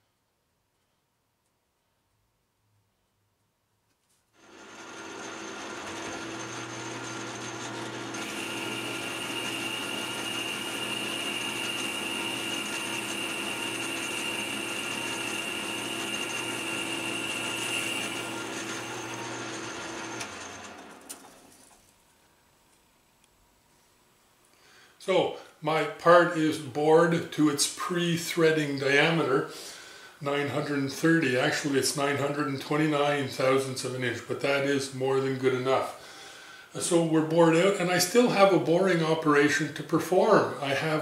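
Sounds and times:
boring bar cutting metal: 0:04.4 - 0:21.4
metal lathe whirring: 0:04.4 - 0:21.5.

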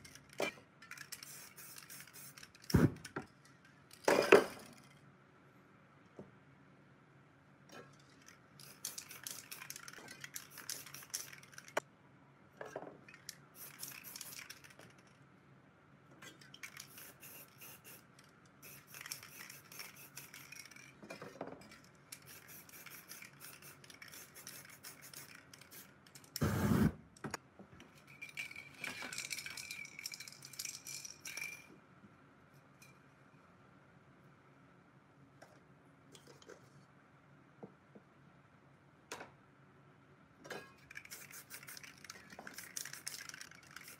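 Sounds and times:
spray can balls rattling: 0:00.0 - 0:04.9, 0:08.0 - 0:11.8, 0:13.0 - 0:15.2, 0:16.4 - 0:26.5, 0:28.0 - 0:31.7, 0:40.8 - 0:43.9
spray paint hiss: 0:01.0 - 0:03.0, 0:08.6 - 0:11.8, 0:13.5 - 0:14.8, 0:16.6 - 0:20.8, 0:22.2 - 0:26.9, 0:40.9 - 0:43.9.

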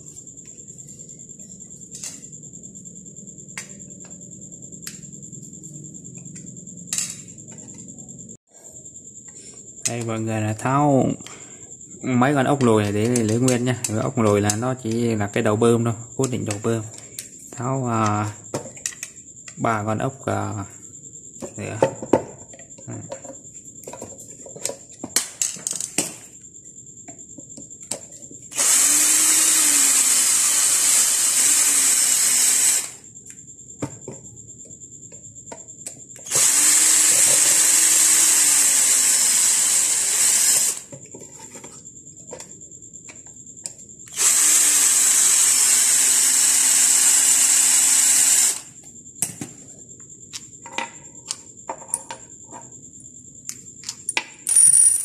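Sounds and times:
electric screwdriver whirring: 0:28.5 - 0:33.0, 0:36.3 - 0:40.8, 0:44.1 - 0:48.6.

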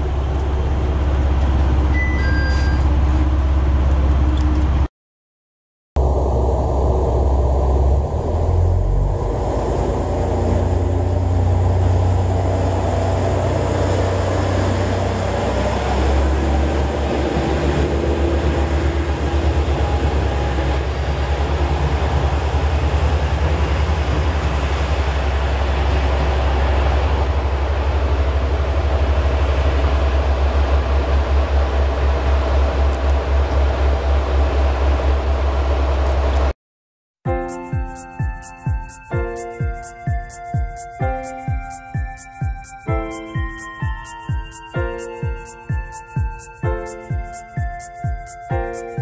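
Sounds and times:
diesel railcar engine throbbing: 0:00.0 - 0:04.9, 0:06.0 - 0:36.5.

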